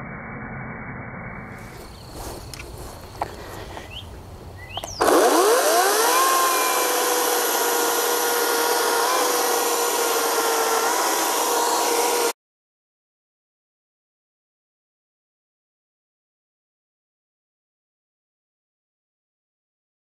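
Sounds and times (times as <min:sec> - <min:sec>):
electric chainsaw cutting log: 0:04.9 - 0:12.4.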